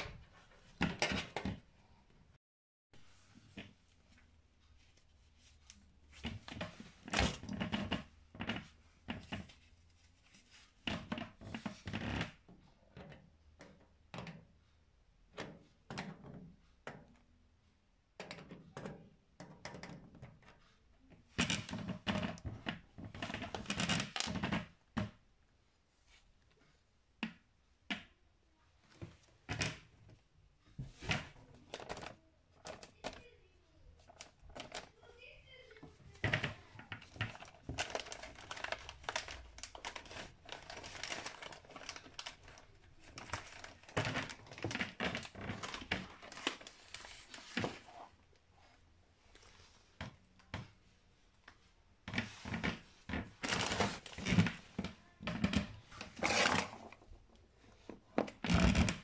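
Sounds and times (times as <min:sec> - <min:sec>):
cable being handled: 0:30.8 - 0:33.3, 0:34.0 - 0:34.9, 0:35.8 - 0:48.2, 0:51.4 - 0:59.0.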